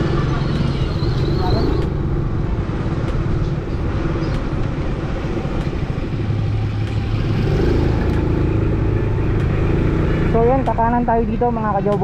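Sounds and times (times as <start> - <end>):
wind and road rush: 0.0 - 12.0
motorcycle engine running: 5.7 - 12.0.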